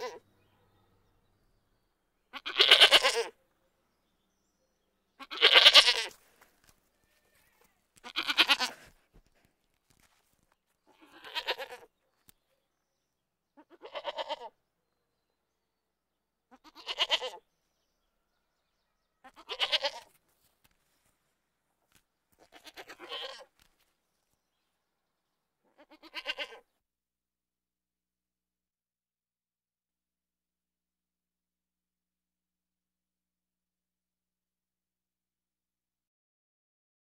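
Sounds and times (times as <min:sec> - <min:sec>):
goat bleating: 0:00.0 - 0:00.2, 0:02.3 - 0:03.4, 0:05.2 - 0:06.2, 0:07.0 - 0:09.0, 0:10.8 - 0:11.9, 0:13.6 - 0:14.6, 0:16.5 - 0:17.4, 0:19.2 - 0:20.2, 0:22.4 - 0:23.5, 0:25.6 - 0:26.7.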